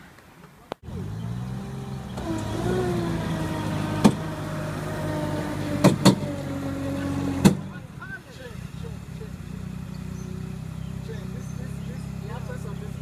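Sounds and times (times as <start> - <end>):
robotic vehicle motor whine: 0.9 - 7.5
sharp clicks or knocks: 4.0 - 4.3, 5.8 - 6.3, 7.4 - 7.7.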